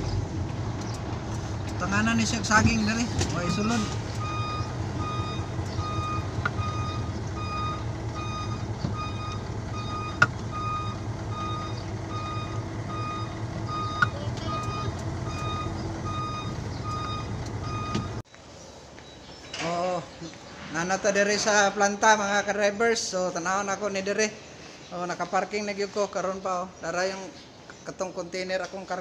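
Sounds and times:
truck engine humming: 0:00.0 - 0:18.2
truck reversing alarm beeping: 0:00.0 - 0:18.2
sharp clicks: 0:00.5 - 0:01.8.

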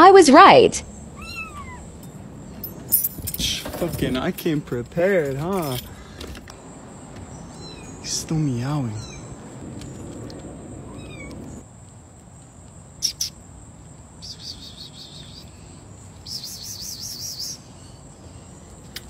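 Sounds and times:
kitten mewing: 0:01.1 - 0:02.0, 0:10.9 - 0:11.6.

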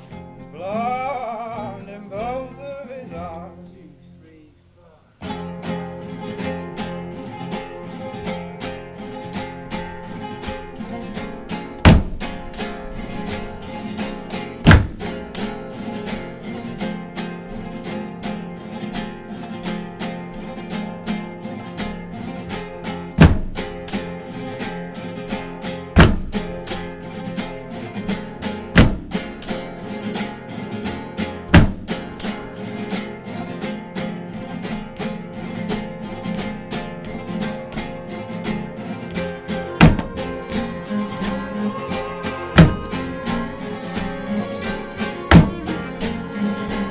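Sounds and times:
acoustic guitars strumming: 0:00.0 - 0:46.9
heavy drum hits: 0:11.8 - 0:12.4, 0:14.6 - 0:15.2, 0:23.2 - 0:23.6, 0:26.0 - 0:26.4, 0:28.8 - 0:29.2, 0:31.5 - 0:32.0, 0:39.8 - 0:40.2.

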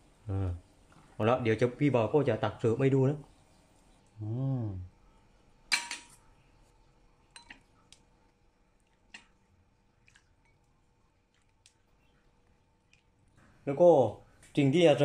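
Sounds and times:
metal ladle clinking on pot: 0:05.7 - 0:06.2, 0:07.3 - 0:07.6.

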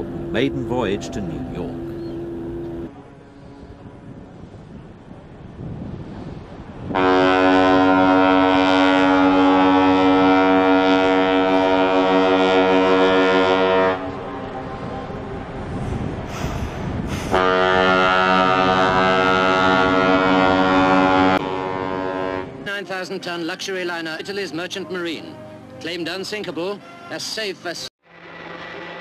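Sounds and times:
ship's horn blasts: 0:00.0 - 0:05.0, 0:06.0 - 0:22.8, 0:24.2 - 0:27.2.

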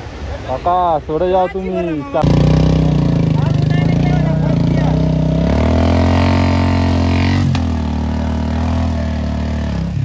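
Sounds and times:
motorcycle engine revving high: 0:02.2 - 0:10.0.

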